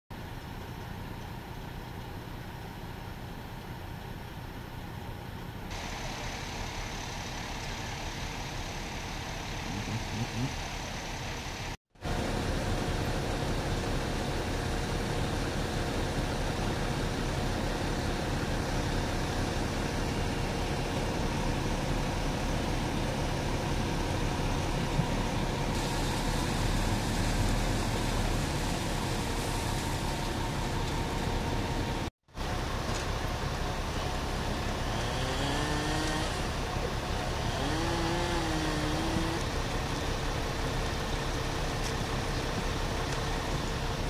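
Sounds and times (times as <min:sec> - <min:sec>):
fire engine idling: 0:00.2 - 0:35.0, 0:36.0 - 0:44.0.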